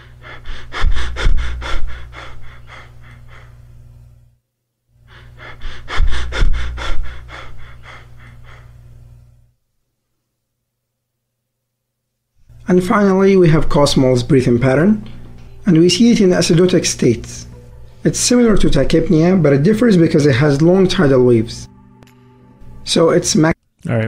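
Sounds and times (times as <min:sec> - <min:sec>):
rapid breathing: 0:00.0 - 0:04.1, 0:05.0 - 0:09.5
steady low hum: 0:00.0 - 0:09.8, 0:12.4 - 0:24.0.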